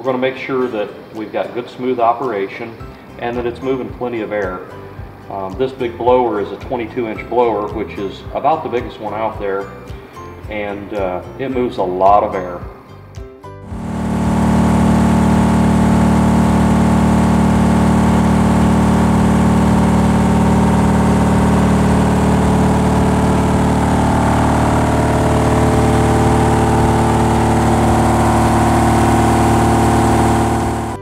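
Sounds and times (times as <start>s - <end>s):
rotary blower humming: 13.7s - 31.0s.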